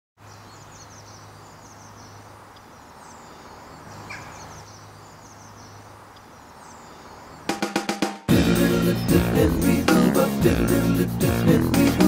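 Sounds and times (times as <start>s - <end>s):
small birds chirping: 0.2s - 7.6s.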